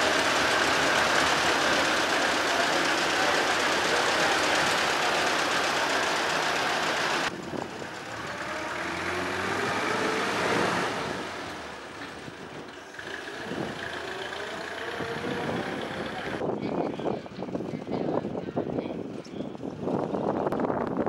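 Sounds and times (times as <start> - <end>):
vehicle driving past: 0.0 - 16.4
vintage car engine running: 0.0 - 16.4.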